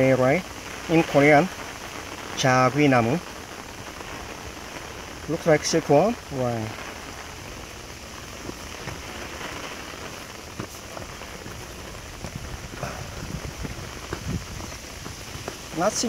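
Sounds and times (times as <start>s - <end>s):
rain on foliage: 0.0s - 16.0s
faint taps and rustles: 8.4s - 9.2s, 10.4s - 15.8s.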